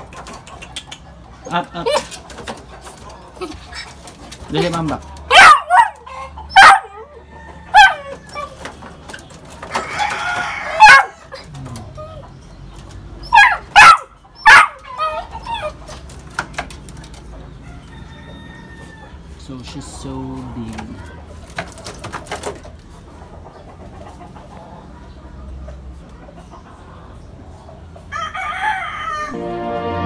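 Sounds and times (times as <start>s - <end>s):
puppy barking: 5.3s - 8.6s, 10.7s - 12.2s, 13.2s - 15.8s.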